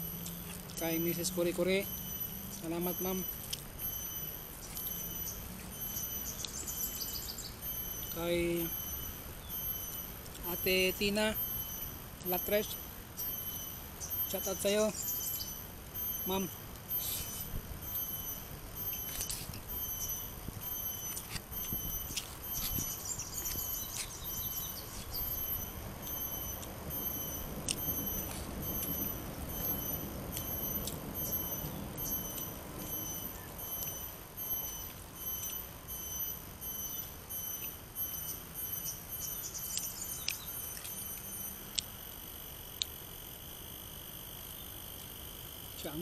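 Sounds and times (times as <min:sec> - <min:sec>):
bird twitters: 0:00.0 - 0:42.0
insects chirping: 0:00.0 - 0:46.0
chewing: 0:03.3 - 0:06.7, 0:20.6 - 0:25.2.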